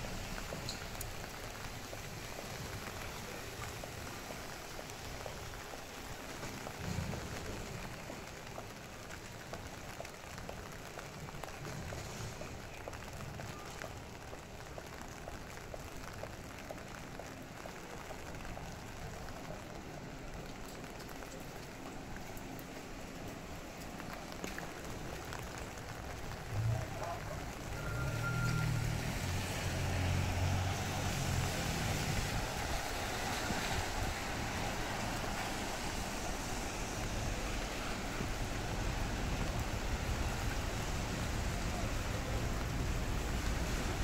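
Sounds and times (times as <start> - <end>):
rain falling on street: 0.0 - 44.0
vehicle engine rumbling past: 26.4 - 36.2.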